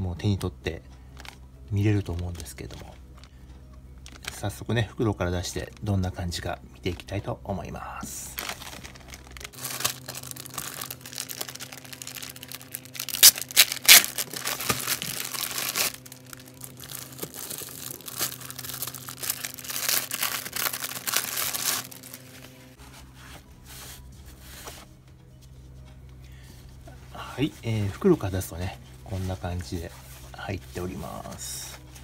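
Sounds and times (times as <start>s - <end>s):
plastic bags crinkling: 4.0s - 4.6s, 8.1s - 22.8s
plastic ripping: 8.3s - 22.5s.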